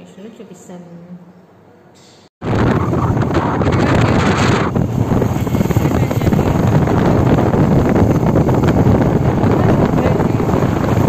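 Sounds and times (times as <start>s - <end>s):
wind buffeting microphone: 2.4s - 11.0s
motorcycle engine running: 2.6s - 11.0s.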